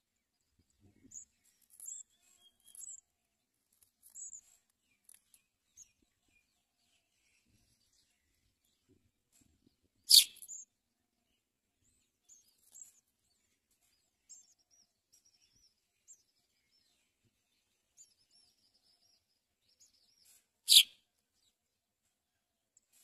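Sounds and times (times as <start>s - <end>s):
faint high twittering: 0.4s - 3.1s, 10.1s - 10.7s, 11.8s - 21.0s
sparrow sharp chirps: 0.4s - 8.9s, 9.6s - 21.6s.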